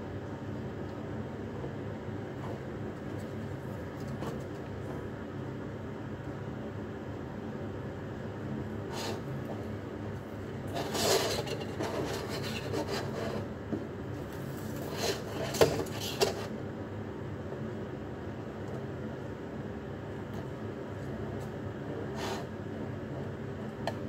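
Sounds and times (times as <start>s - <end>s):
rubbing and rustling: 10.7s - 13.5s.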